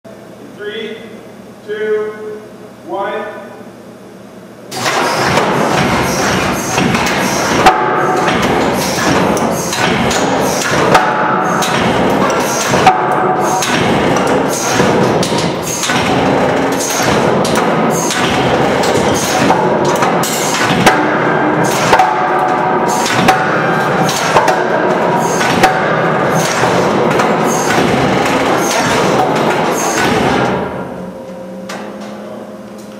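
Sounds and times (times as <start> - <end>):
loading machine running: 4.7 - 32.9
sharp bangs from steel brace: 4.8 - 30.9.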